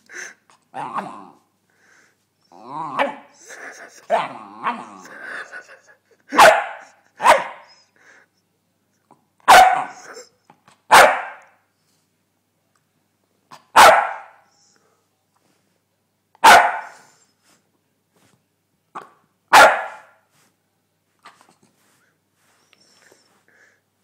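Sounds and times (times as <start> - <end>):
dog barking: 6.3 - 7.8, 9.5 - 10.3, 10.9 - 11.6, 13.7 - 14.4, 16.4 - 17.1, 19.0 - 20.2.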